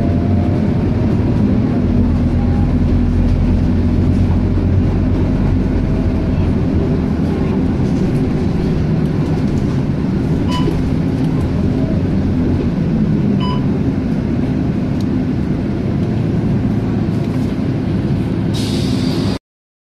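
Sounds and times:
bus diesel engine running: 0:00.0 - 0:19.4
short electronic beeps: 0:13.4 - 0:13.7.

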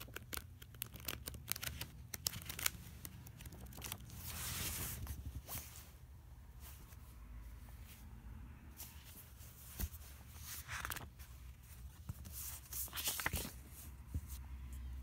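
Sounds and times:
paper pages rustling: 0:00.0 - 0:06.0, 0:08.9 - 0:14.4.

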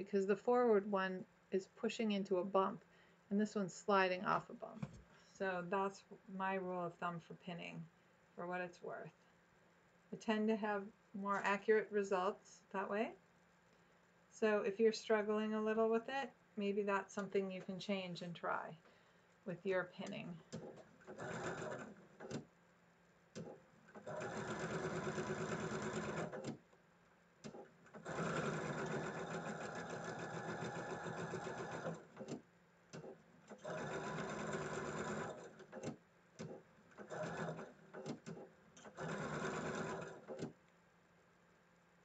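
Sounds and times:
sewing machine stitching: 0:20.5 - 0:22.5, 0:23.4 - 0:26.6, 0:27.5 - 0:40.6.

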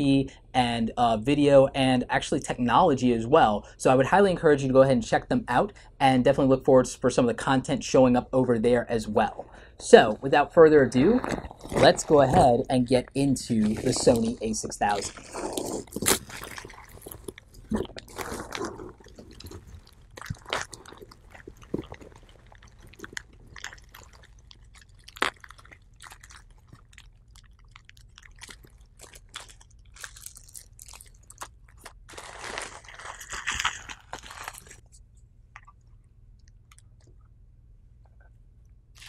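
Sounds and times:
bubble wrap and paper crinkling: 0:11.0 - 0:12.4, 0:13.5 - 0:34.8.

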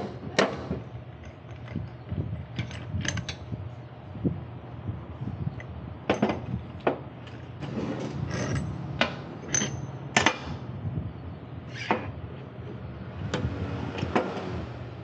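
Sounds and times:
steady low hum: 0:00.0 - 0:15.0
metal tools knocking and clinking: 0:01.2 - 0:03.5, 0:05.6 - 0:07.5, 0:08.2 - 0:10.5.

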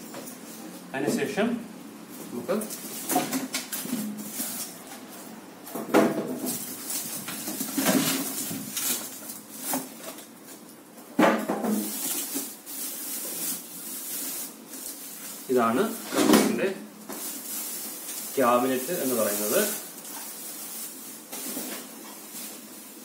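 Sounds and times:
plastic wrap rustling: 0:02.1 - 0:23.0
polystyrene foam pulled off: 0:11.8 - 0:16.0, 0:17.1 - 0:23.0.

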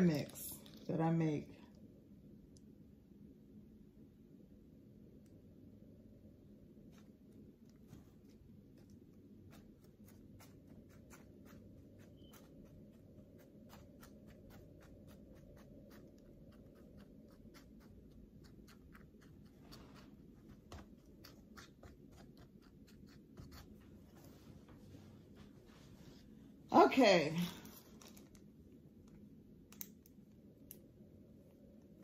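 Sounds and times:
low steady hum: 0:00.0 - 0:32.0
seed packets rustling and clicking: 0:27.6 - 0:28.5.

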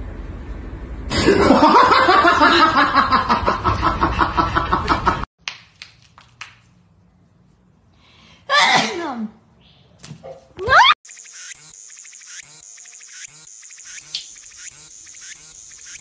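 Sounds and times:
person laughing loudly: 0:01.1 - 0:05.3.

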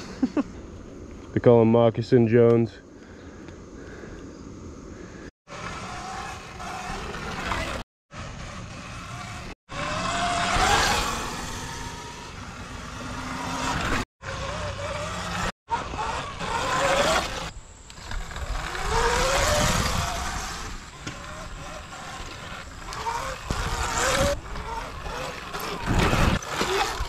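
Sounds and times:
electric motor whining: 0:05.5 - 0:27.0.

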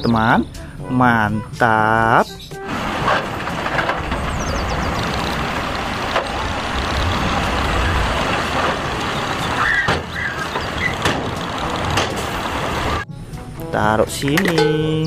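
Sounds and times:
dump truck tipping rock: 0:02.6 - 0:13.0
sharp knocks: 0:02.7 - 0:13.0.

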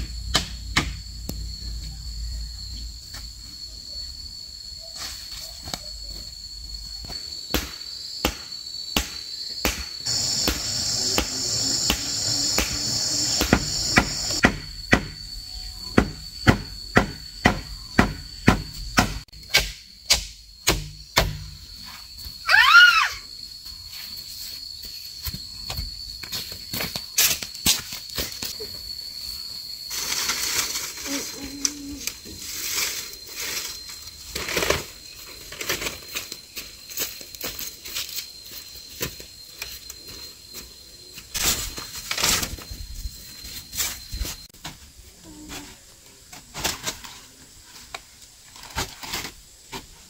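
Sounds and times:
insects droning: 0:00.0 - 0:50.0
sharp knocks on wood: 0:16.0 - 0:21.4.

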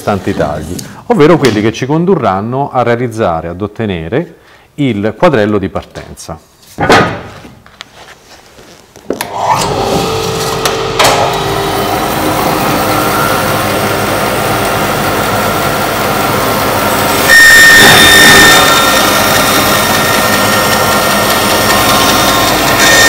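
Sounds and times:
bandsaw blade cutting log: 0:09.2 - 0:23.0
bandsaw running: 0:09.2 - 0:23.0.

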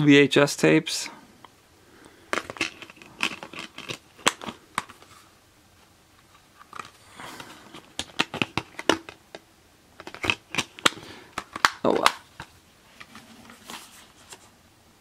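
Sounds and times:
plastic case clicking and rattling: 0:02.3 - 0:05.1, 0:06.6 - 0:09.4, 0:10.0 - 0:12.5.

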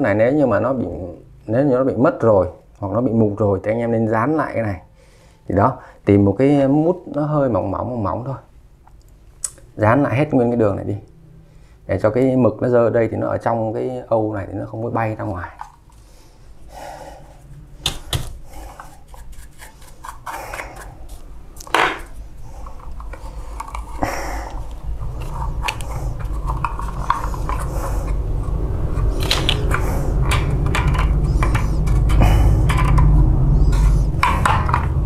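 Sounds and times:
plastic parts clicking and scraping: 0:17.9 - 0:35.0
low hum: 0:20.2 - 0:35.0.

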